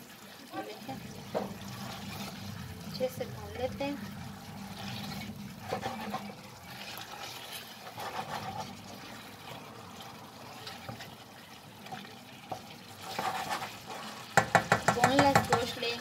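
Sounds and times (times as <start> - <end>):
gravy sizzling: 0.0 - 16.0
wooden spoon scraping pot: 1.2 - 3.2, 3.8 - 16.0
spoon knocking against pot: 14.3 - 15.8.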